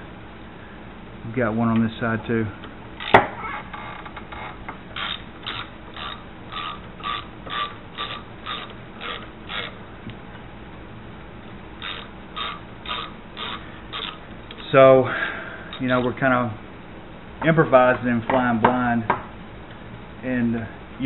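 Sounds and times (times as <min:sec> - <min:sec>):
ratchet pawl clicking: 0:04.9 - 0:09.8, 0:11.8 - 0:14.8.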